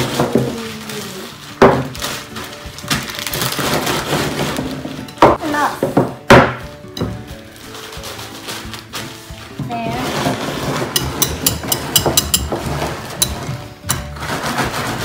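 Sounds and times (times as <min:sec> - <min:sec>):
whisk knocking on glass bowl: 0:10.9 - 0:14.1.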